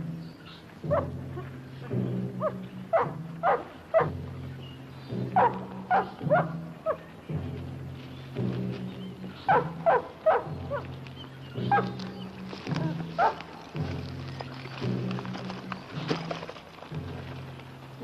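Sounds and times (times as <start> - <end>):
low steady drone: 0.0 - 18.0
dog barking: 2.4 - 4.2, 5.4 - 7.0, 9.5 - 10.8, 13.2 - 13.5.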